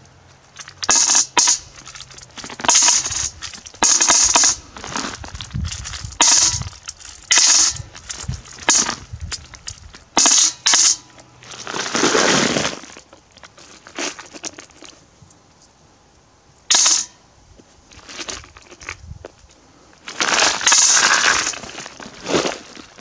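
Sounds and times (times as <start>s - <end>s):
coins clinking into metal bucket: 5.6s - 8.9s.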